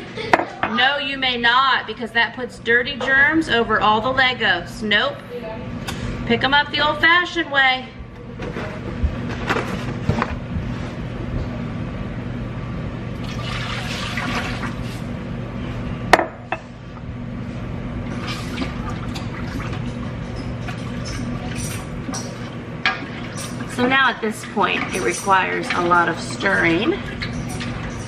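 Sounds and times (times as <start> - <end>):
steady low hum: 0.0 - 28.0
milk pouring into a pot: 13.2 - 14.8.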